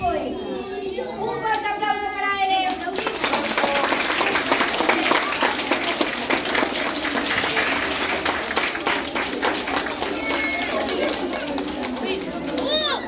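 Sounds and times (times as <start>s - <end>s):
crowd applause: 2.8s - 13.0s.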